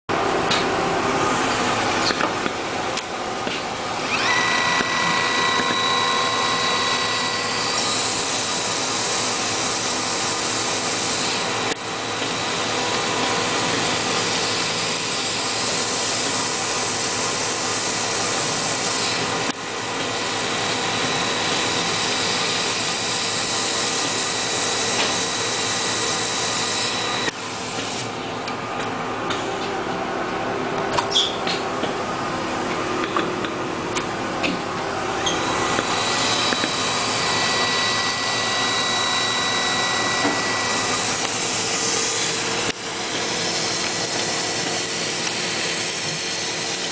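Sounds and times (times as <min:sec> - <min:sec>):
high whine: 0:32.0 - 0:46.2.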